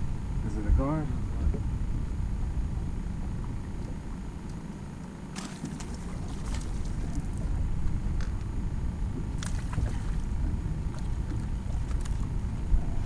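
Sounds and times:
wind buffeting microphone: 5.5 - 13.0.

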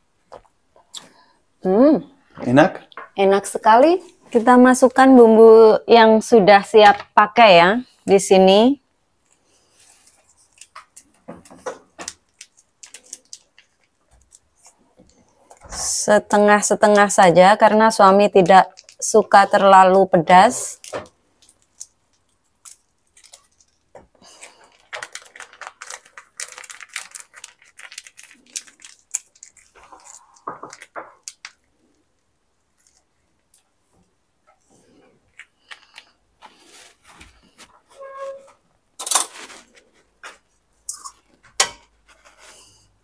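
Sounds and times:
plastic sachet crinkling: 9.2 - 15.7, 16.6 - 32.2.

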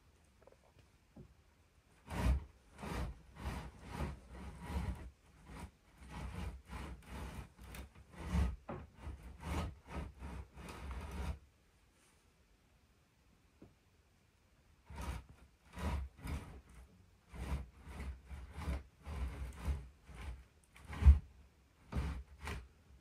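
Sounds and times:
rubbing and scraping noises: 1.9 - 12.2, 14.8 - 23.0.

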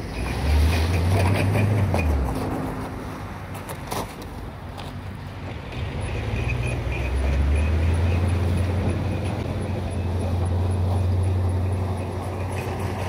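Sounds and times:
diesel truck engine under load: 0.0 - 13.0.

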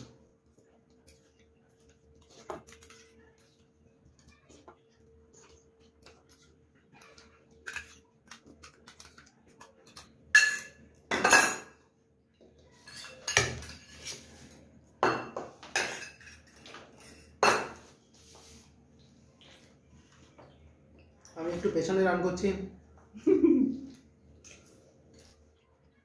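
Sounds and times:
metal bowls and spoons clinking: 5.3 - 11.9, 12.7 - 14.3, 15.0 - 17.9.

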